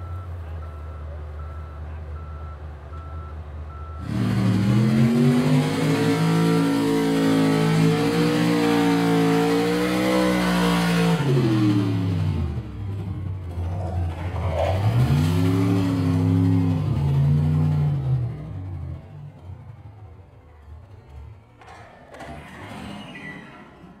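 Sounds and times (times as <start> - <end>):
pickup engine at full throttle: 4.0 - 21.6.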